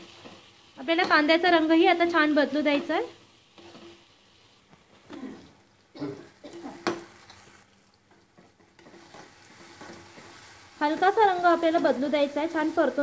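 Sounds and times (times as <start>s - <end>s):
onions sizzling in oil: 0.0s - 13.0s
metal spoon scraping pan: 2.7s - 4.1s, 8.4s - 11.1s.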